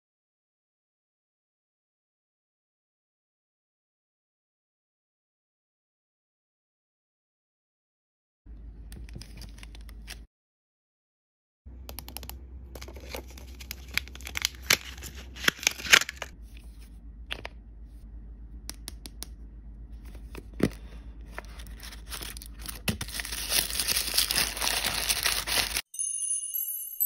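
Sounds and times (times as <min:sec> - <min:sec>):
plastic wrapping torn and crinkled: 0:12.8 - 0:16.4, 0:21.4 - 0:25.8.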